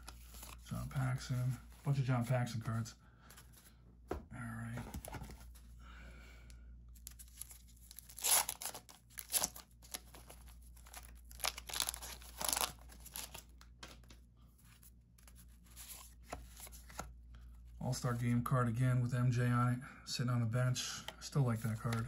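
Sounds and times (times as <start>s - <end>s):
wax-paper wrapper tearing and crinkling: 7.0s - 13.5s.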